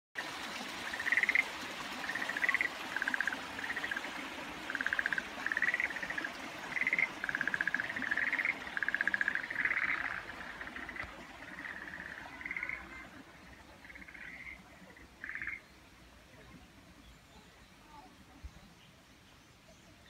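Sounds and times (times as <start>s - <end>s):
frogs trilling: 0.9s - 1.4s, 2.0s - 13.1s, 13.8s - 15.6s.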